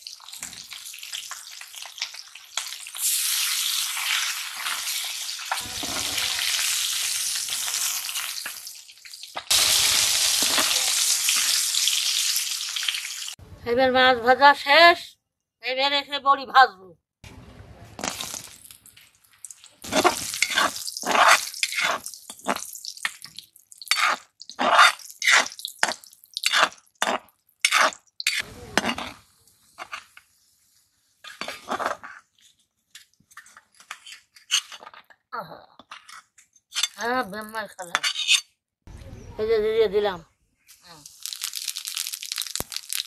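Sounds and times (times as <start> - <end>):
metal spatula scraping a pan: 4.3 - 8.6, 9.5 - 11.7, 19.8 - 22.6, 23.9 - 29.2, 31.2 - 32.3, 33.3 - 35.0, 37.9 - 38.5
woman speaking: 13.6 - 17.0.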